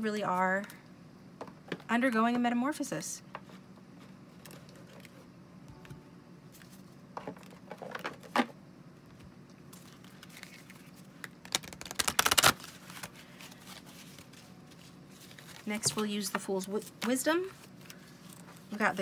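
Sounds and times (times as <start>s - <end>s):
cards being shuffled: 9.7s - 18.8s.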